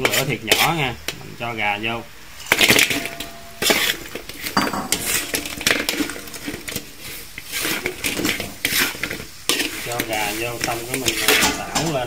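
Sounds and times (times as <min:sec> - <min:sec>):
utensil and wings knocking on pan: 0:02.5 - 0:09.7.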